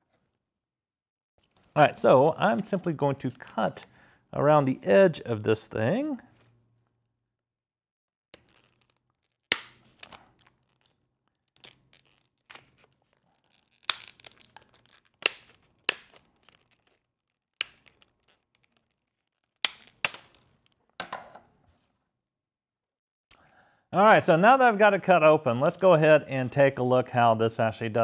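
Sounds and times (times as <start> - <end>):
scissors snipping plastic: 8.4 - 20.7.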